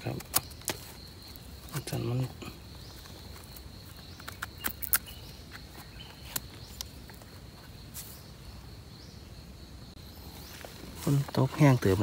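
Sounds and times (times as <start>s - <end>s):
high-pitched insect trill: 0.0s - 12.0s
sharp clicks and snaps: 4.2s - 5.1s.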